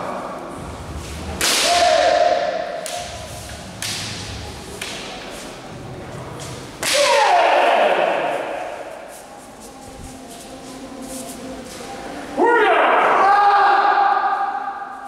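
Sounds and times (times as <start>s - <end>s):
bamboo sword strikes cracking: 1.4s - 4.2s, 6.8s - 7.4s.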